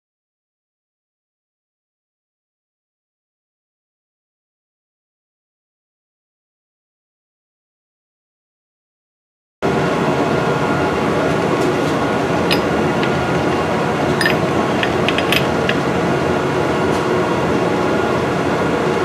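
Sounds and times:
machine humming: 0:10.6 - 0:18.8.

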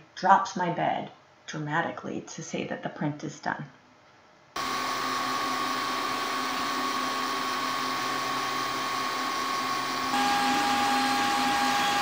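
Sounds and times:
cooling fan whirring: 0:04.6 - 0:12.0
motor whine: 0:04.6 - 0:12.0.

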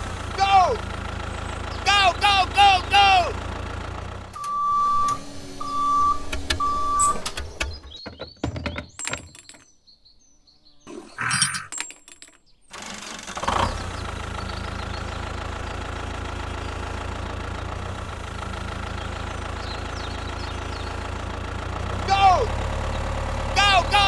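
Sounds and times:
small motor humming: 0:04.7 - 0:07.6
handling knocks: 0:07.7 - 0:09.7.

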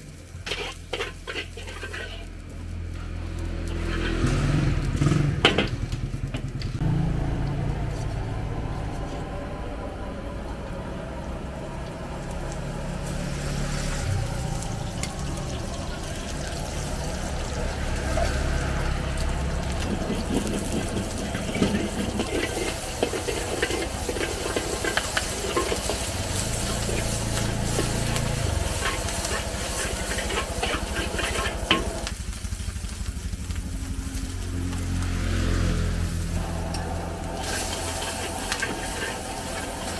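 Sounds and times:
food sizzling in a wok: 0:00.0 - 0:08.1, 0:11.5 - 0:39.9
metal spatula scraping a wok: 0:00.4 - 0:02.9, 0:03.6 - 0:05.7, 0:18.0 - 0:32.1, 0:36.1 - 0:39.9
steady low rumble: 0:04.7 - 0:35.2, 0:35.9 - 0:39.9.

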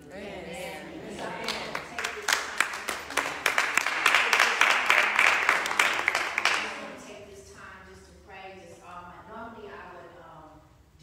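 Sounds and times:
audience clapping: 0:01.2 - 0:07.1.

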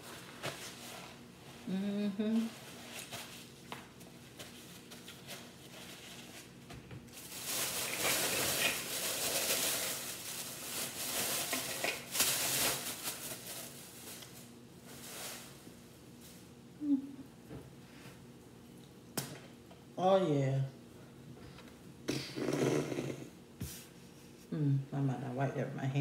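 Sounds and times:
paper napkin rustling: 0:02.4 - 0:15.6
plastic bag crinkling: 0:04.6 - 0:15.6.

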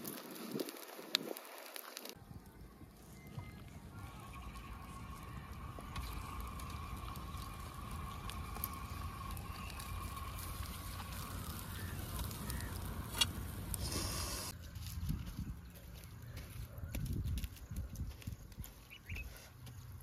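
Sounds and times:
wood fire crackling: 0:00.0 - 0:14.9.

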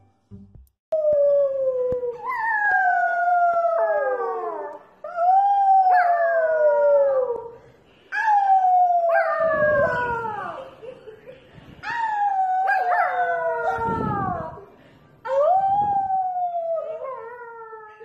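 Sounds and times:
dog howling: 0:12.0 - 0:14.6.

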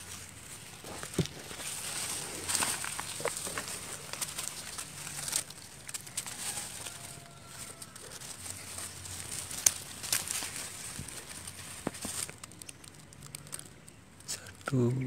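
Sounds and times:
bamboo rustling and knocking: 0:00.0 - 0:14.7.

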